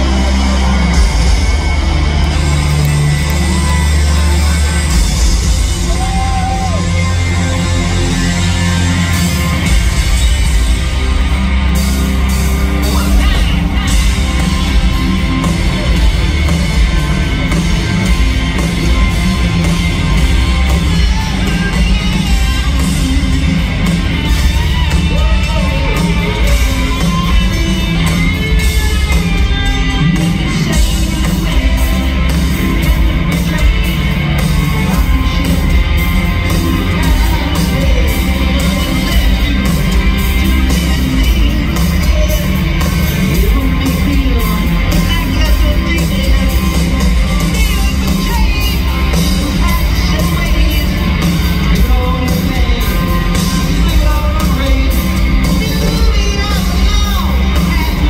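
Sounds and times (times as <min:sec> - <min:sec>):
crowd shouting along: 0:00.0 - 0:58.0
live rock band playing loudly: 0:00.0 - 0:58.0
sung lead vocal: 0:12.7 - 0:58.0.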